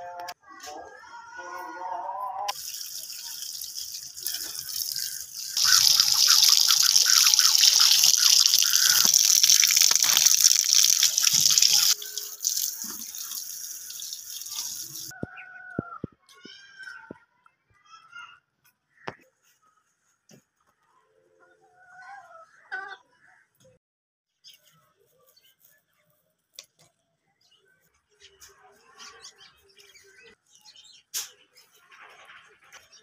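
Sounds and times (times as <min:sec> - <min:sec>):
tap water splashing into colander: 0:02.5 - 0:15.1.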